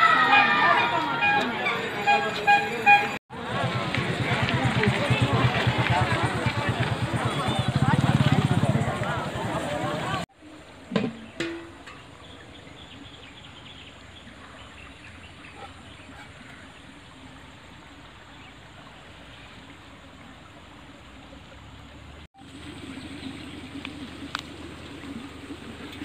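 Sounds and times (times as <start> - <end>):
stream trickling: 10.4 - 26.0.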